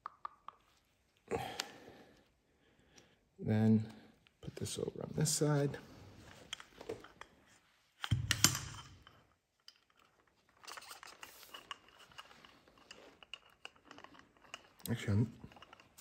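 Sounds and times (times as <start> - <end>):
metal tools clicking and scraping: 6.3 - 16.0.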